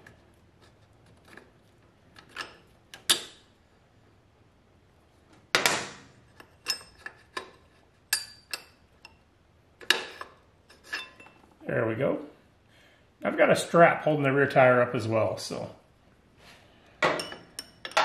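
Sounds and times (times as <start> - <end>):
metal bolts clinking and knocking: 6.4 - 9.2, 17.0 - 18.0.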